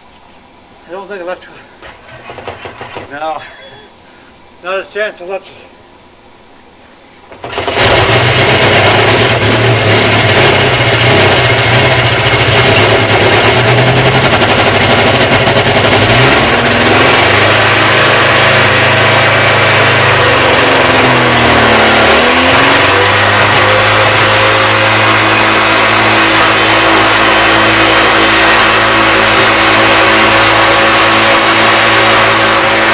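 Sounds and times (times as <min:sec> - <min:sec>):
two-stroke aircraft engine running: 0:07.4 - 0:32.9.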